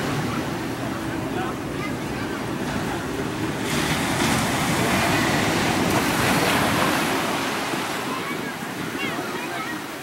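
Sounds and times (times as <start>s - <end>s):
sea waves washing: 0.0s - 10.0s.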